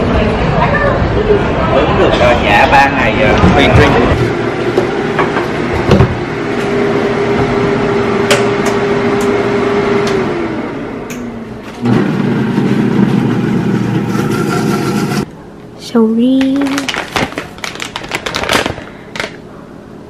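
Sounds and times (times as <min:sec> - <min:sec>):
blender motor whining: 0:11.8 - 0:15.2.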